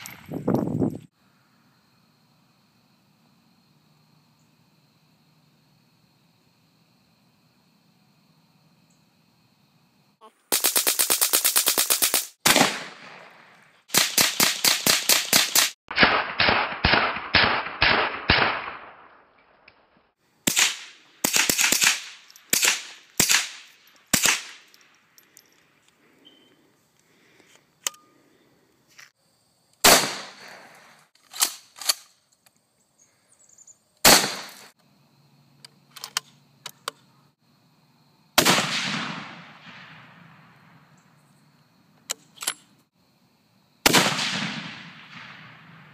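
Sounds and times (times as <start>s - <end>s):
rifle shots: 10.5s - 19.1s, 20.5s - 24.7s, 29.8s - 30.6s, 34.0s - 34.7s, 38.4s - 40.4s, 43.8s - 45.9s
loud rifle shot with echo: 12.4s - 14.8s, 29.8s - 30.4s, 34.0s - 34.6s, 38.4s - 40.4s, 43.9s - 45.9s.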